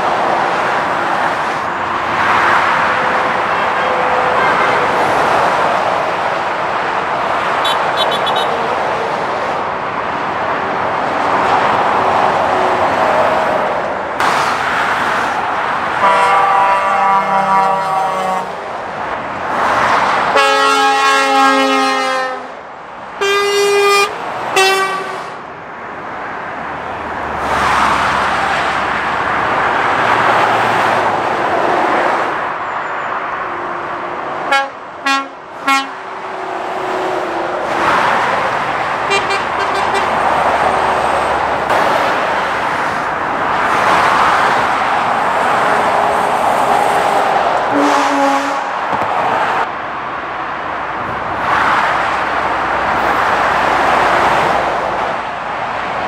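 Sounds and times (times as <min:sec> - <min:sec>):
motorway traffic passing: 0:00.0 - 0:56.0
vehicle horn toots: 0:03.6 - 0:05.0, 0:07.6 - 0:08.6, 0:16.0 - 0:18.5, 0:20.4 - 0:22.5, 0:23.2 - 0:25.3, 0:34.5 - 0:36.0, 0:39.1 - 0:40.2, 0:47.7 - 0:48.7.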